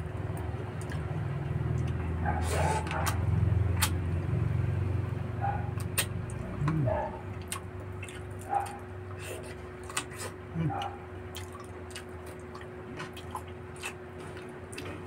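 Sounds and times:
vehicle engine rumbling: 0.0 - 11.3
eating clicks and smacks: 0.3 - 1.1, 2.7 - 3.2, 5.7 - 15.0.

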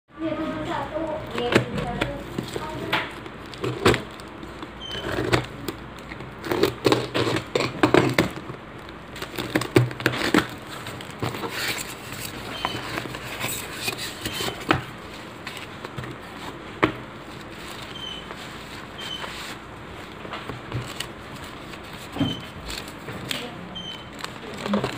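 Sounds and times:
foam wrapping rustling: 0.2 - 24.9
tape and cardboard crackling: 0.4 - 24.9
box cutter cutting cardboard: 6.4 - 8.4.

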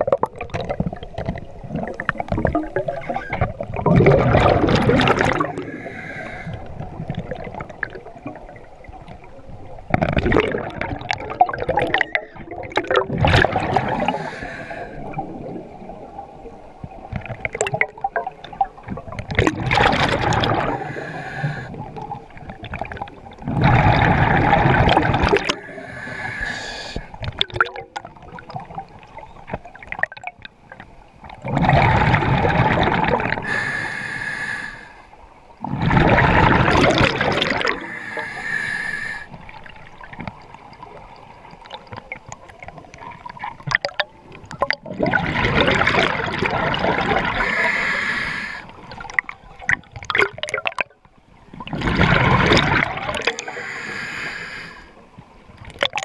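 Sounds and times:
exhaled bubbles rushing: 0.0 - 30.5, 31.2 - 33.6, 35.6 - 38.5, 39.4 - 53.7
regulator hissing inhale: 5.4 - 6.7, 14.0 - 15.1, 20.7 - 21.8, 25.4 - 27.2, 33.4 - 35.2, 37.8 - 39.4, 47.4 - 48.8, 53.3 - 55.0.

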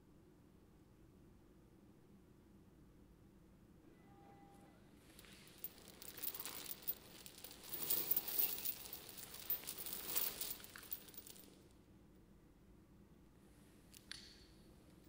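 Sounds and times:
heavy chain clinking on floor: 5.1 - 11.6.

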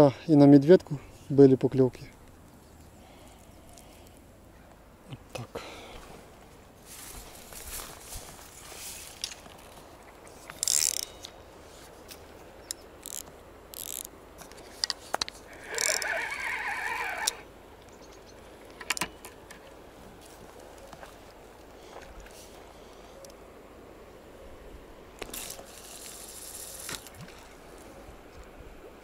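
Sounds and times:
fishing reel gears whirring: 10.6 - 11.2, 13.0 - 14.1, 15.5 - 17.4.

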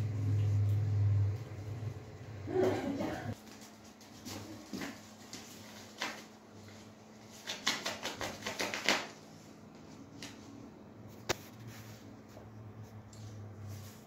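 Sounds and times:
cat scuffling on tiles: 3.3 - 14.0.

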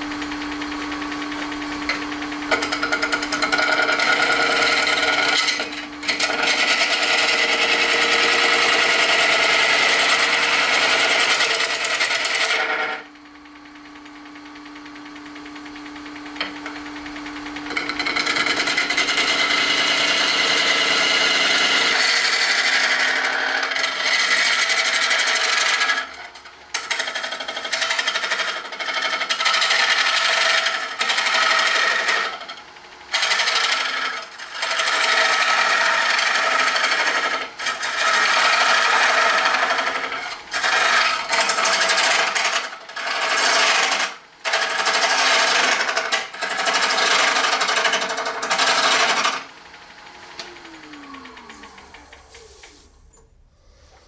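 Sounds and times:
lathe tool scraping hiss: 50.5 - 54.0.

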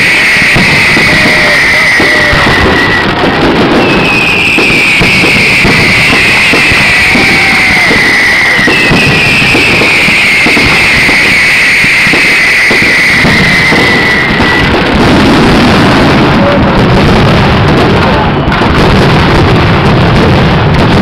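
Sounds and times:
high whistle falling in pitch: 0.0 - 14.8
fireworks bangs and crackles: 0.0 - 21.0.

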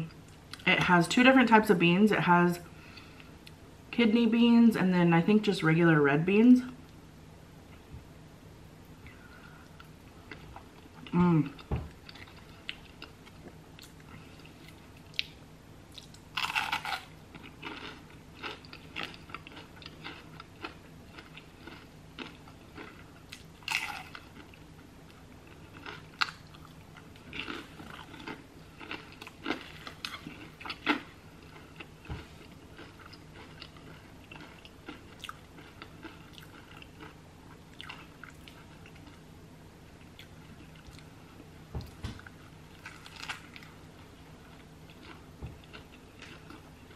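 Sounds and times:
crunchy bite into onion ring: 16.0 - 24.3
chewing with wet mouth clicks: 32.8 - 39.2.

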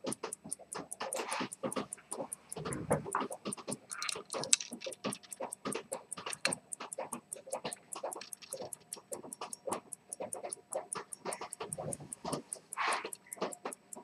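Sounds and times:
pocket watch ticking: 0.0 - 14.0.

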